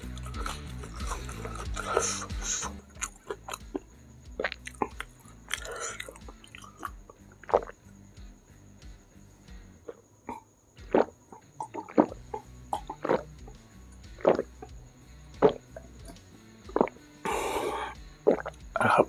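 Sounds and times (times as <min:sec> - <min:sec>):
breathy exhale: 0:01.8 - 0:02.8, 0:17.2 - 0:18.0
gulps of water: 0:09.9 - 0:13.4, 0:16.7 - 0:19.0.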